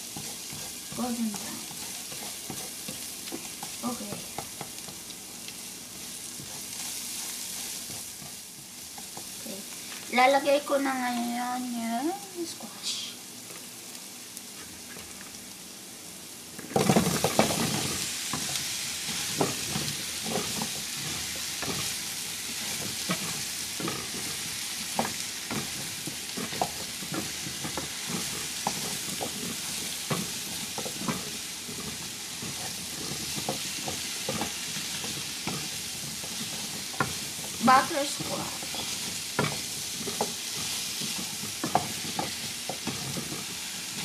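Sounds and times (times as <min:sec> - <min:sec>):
food sizzling in oil: 0:00.0 - 0:44.0
pieces thudding into pan: 0:16.6 - 0:18.5
plastic spatula scraping pan: 0:22.6 - 0:44.0.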